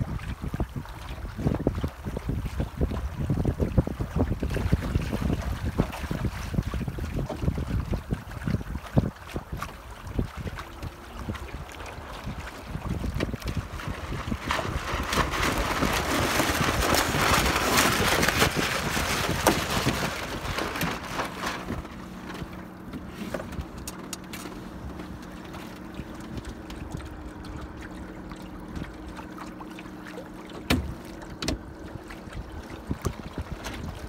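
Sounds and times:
water rushing past boat hull: 0:00.0 - 0:34.0
wind buffeting microphone: 0:00.0 - 0:34.0.

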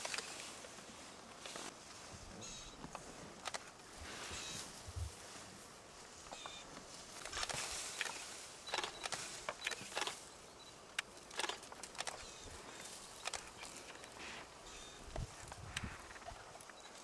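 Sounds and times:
leaves rustling: 0:00.0 - 0:17.0.

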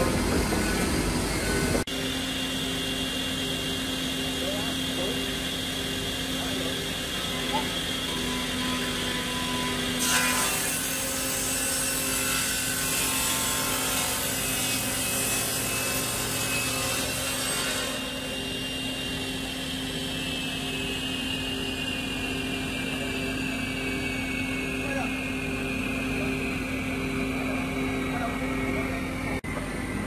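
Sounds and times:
saw cutting through wood: 0:00.0 - 0:21.9
saw motor hum: 0:00.0 - 0:30.0.

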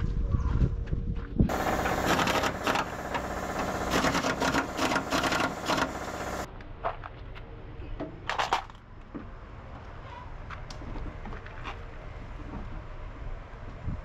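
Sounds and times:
power tool whirring on metal: 0:01.5 - 0:06.5.

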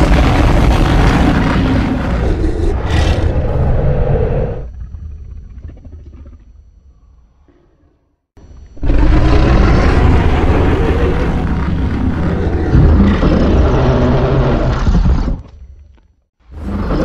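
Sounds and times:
rumbling monster roar: 0:00.0 - 0:05.0, 0:08.8 - 0:15.4.

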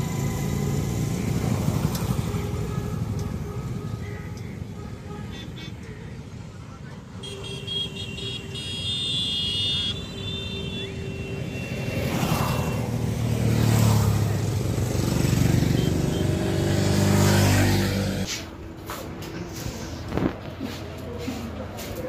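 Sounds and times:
motorcycles passing by: 0:00.0 - 0:04.8, 0:09.8 - 0:18.3
vehicle horn: 0:02.3 - 0:06.2, 0:07.2 - 0:12.8, 0:15.5 - 0:16.7.

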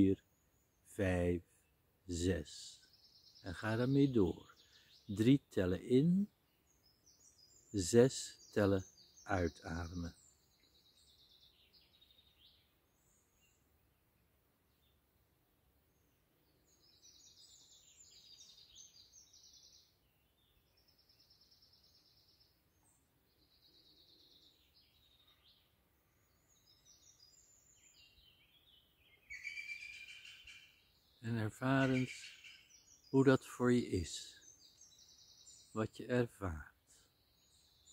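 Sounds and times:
outdoor background hiss: 0:00.0 - 0:37.9
birds chirping and whistling: 0:16.7 - 0:33.2.

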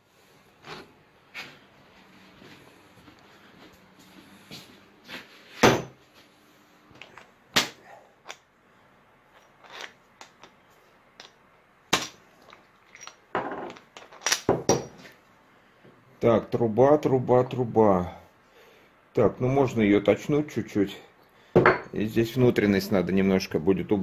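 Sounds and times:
metal parts knocking and clicking: 0:12.0 - 0:15.0.

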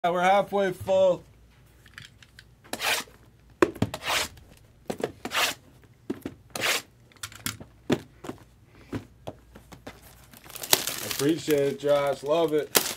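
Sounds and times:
packaging crinkling and tearing: 0:10.0 - 0:12.9.

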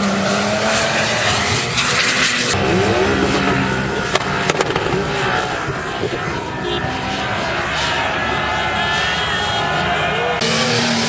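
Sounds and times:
off-road engines revving hard: 0:00.0 - 0:11.0
sharp cracks: 0:04.1 - 0:05.5.

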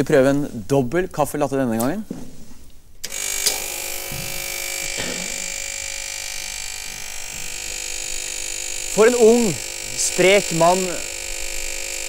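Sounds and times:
espresso machine humming: 0:03.1 - 0:12.0.

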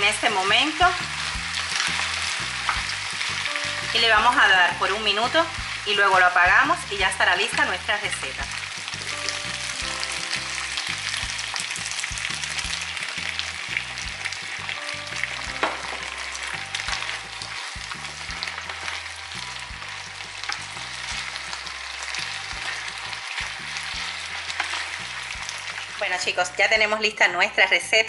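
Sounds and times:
food sizzling in frying pan: 0:00.0 - 0:28.0
wooden spoon knocking pan: 0:15.3 - 0:19.0.

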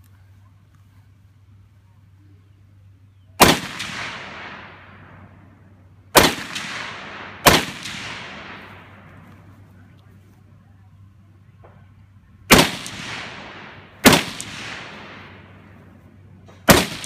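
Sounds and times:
rifle shots with echo: 0:03.4 - 0:05.5, 0:06.1 - 0:09.5, 0:12.4 - 0:17.0.

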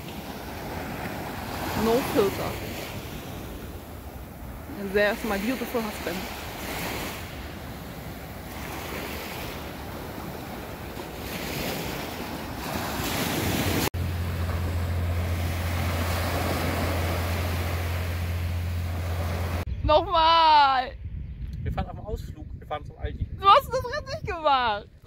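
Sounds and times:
waves breaking on beach: 0:00.0 - 0:19.7
wind buffeting microphone: 0:00.0 - 0:25.0.

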